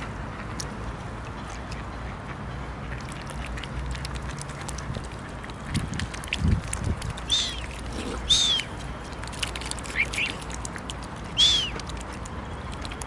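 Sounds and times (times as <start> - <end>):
scratchy bird calls: 7.3 - 9.0, 9.6 - 10.6, 11.3 - 11.9
short rising bird chirps: 11.4 - 11.7.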